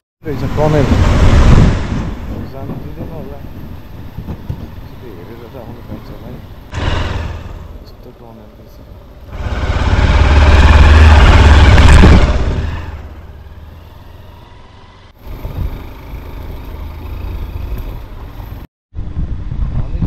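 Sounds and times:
vehicle rushing rumble: 0:00.2 - 0:20.0
steady engine rumble: 0:00.3 - 0:20.0.

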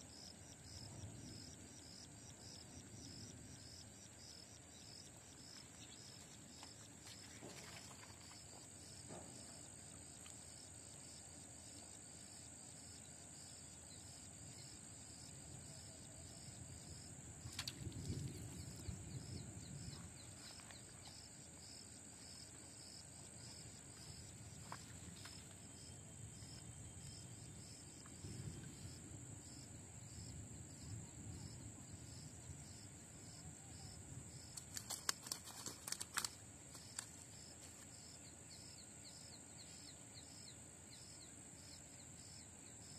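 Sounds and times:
insects chirring: 0:00.0 - 0:42.9
wind buffeting microphone: 0:17.3 - 0:21.0.

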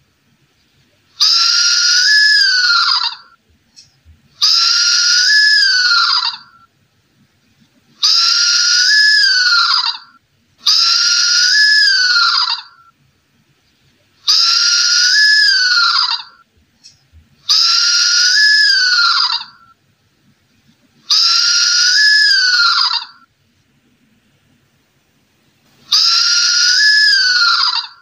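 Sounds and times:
owl calling: 0:01.2 - 0:06.7, 0:08.0 - 0:12.9, 0:14.2 - 0:19.8, 0:21.0 - 0:23.3, 0:25.8 - 0:28.0.

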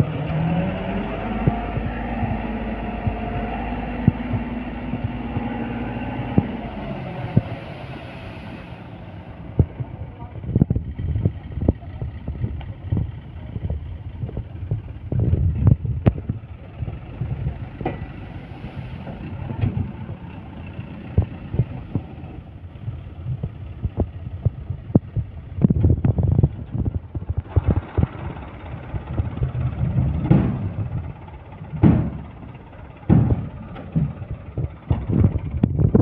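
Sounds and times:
diesel engine running: 0:00.0 - 0:36.0
sharp knocks and thumps: 0:01.3 - 0:06.6, 0:29.1 - 0:31.0, 0:31.7 - 0:32.4, 0:33.0 - 0:35.8
sand unloading from tipper: 0:05.4 - 0:09.4, 0:17.7 - 0:21.1.

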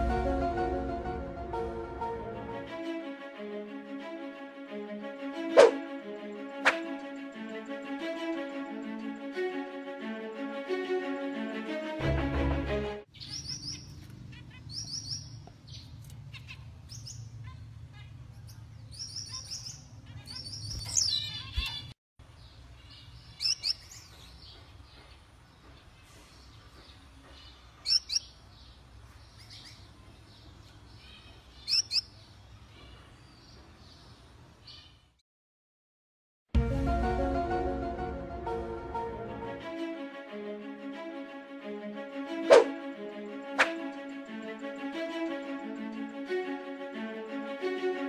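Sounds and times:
intro music: 0:00.0 - 0:13.0, 0:36.6 - 0:48.0
finches chirping: 0:29.2 - 0:34.9.

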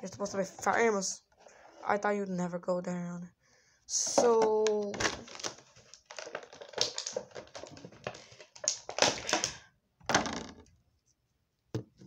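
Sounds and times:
plastic packaging crinkling: 0:04.9 - 0:09.6.

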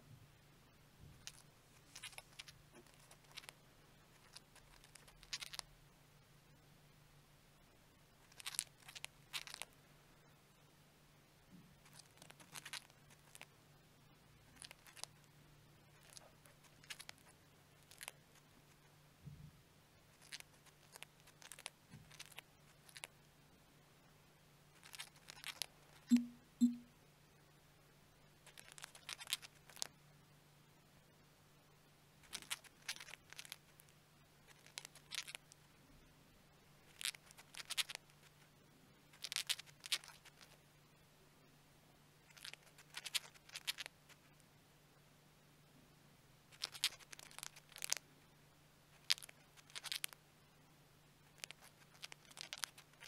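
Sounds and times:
bird grinding its beak: 0:34.5 - 0:35.4, 0:36.9 - 0:38.0, 0:39.2 - 0:40.5, 0:42.3 - 0:43.9, 0:46.6 - 0:48.0, 0:49.0 - 0:50.2, 0:51.4 - 0:53.0.

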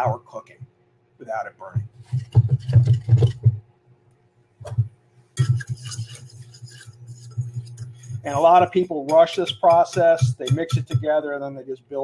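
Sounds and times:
whisk scraping in a pan: 0:02.0 - 0:03.5, 0:05.4 - 0:11.4
saucepan knocking on cooktop: 0:08.3 - 0:11.2.

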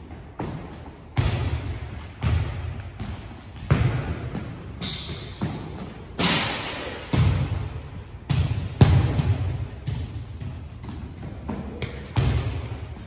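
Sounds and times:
volleyballs smacked and bouncing: 0:00.0 - 0:12.9
short high squeaks: 0:01.9 - 0:02.2, 0:03.0 - 0:03.7.

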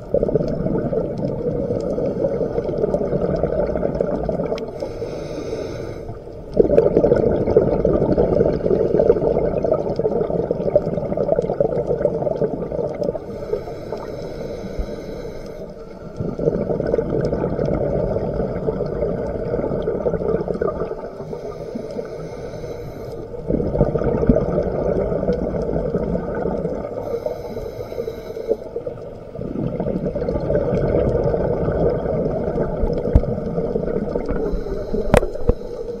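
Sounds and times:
regulator exhale bubbling: 0:00.0 - 0:36.0
regulator inhale hiss: 0:04.7 - 0:06.4, 0:13.2 - 0:16.3, 0:21.1 - 0:23.5, 0:27.0 - 0:29.1, 0:34.0 - 0:36.0.

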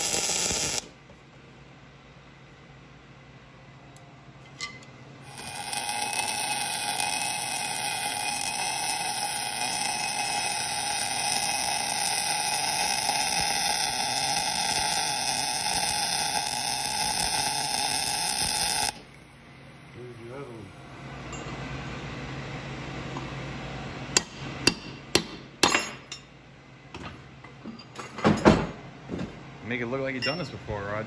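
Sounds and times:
welding arc: 0:00.0 - 0:01.0, 0:05.2 - 0:19.1.

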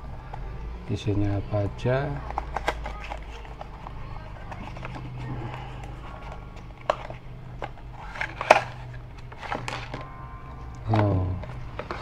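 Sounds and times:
cardboard box rustling and scraping: 0:02.6 - 0:10.0.

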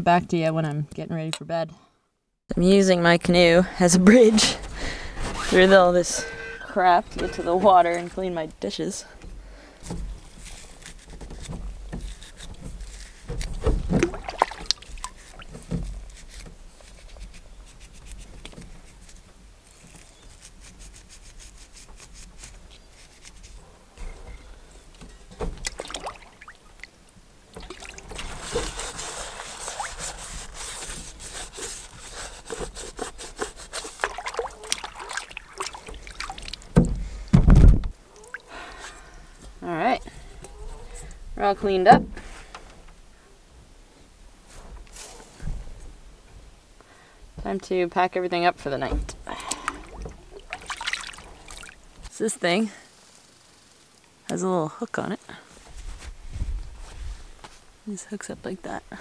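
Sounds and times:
metal bowl being scrubbed: 0:04.1 - 0:08.4, 0:27.9 - 0:36.5
water sloshing and trickling: 0:09.5 - 0:17.3, 0:24.1 - 0:37.2, 0:38.1 - 0:38.8, 0:48.6 - 0:52.1.

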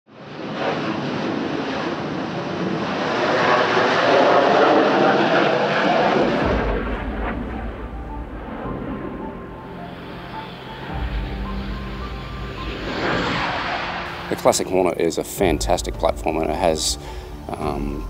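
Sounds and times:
fighter jet taking off: 0:00.1 - 0:18.0.

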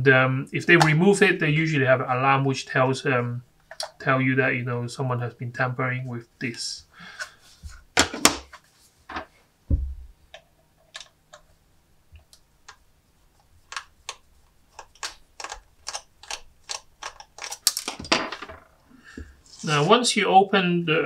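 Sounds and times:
low knock on tabletop: 0:09.7 - 0:10.1.

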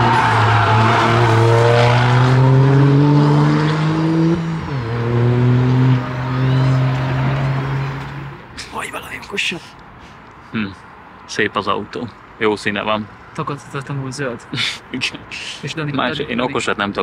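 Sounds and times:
car engine accelerating hard: 0:00.0 - 0:08.4.

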